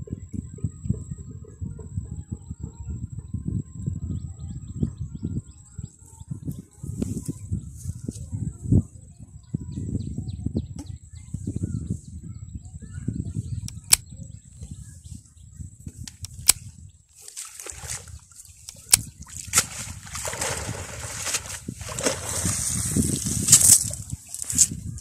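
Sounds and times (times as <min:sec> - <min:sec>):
sharp clicks: 0:13.6 - 0:14.1, 0:16.0 - 0:16.7, 0:18.6 - 0:19.1
water sloshing off net: 0:17.2 - 0:24.1.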